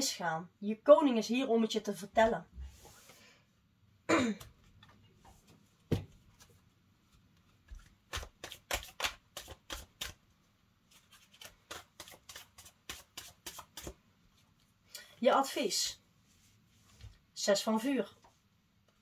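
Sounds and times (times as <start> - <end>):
cards shuffling: 7.7 - 10.2, 10.9 - 14.0.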